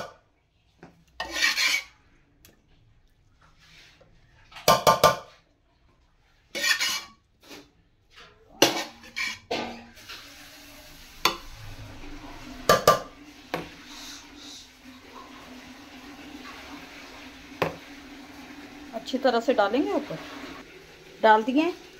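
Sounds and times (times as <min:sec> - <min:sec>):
metal spoon scraping metal pot: 0:01.2 - 0:02.0, 0:06.5 - 0:07.7, 0:08.6 - 0:10.0.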